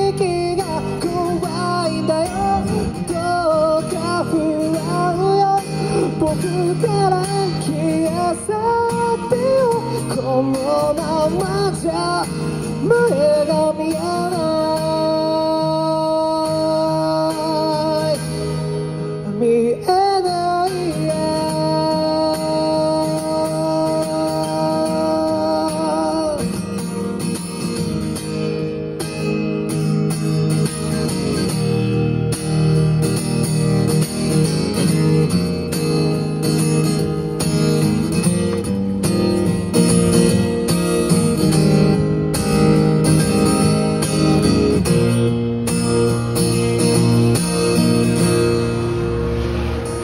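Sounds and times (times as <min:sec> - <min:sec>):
man singing: 0:00.0 - 0:26.6
acoustic guitar: 0:00.0 - 0:50.0.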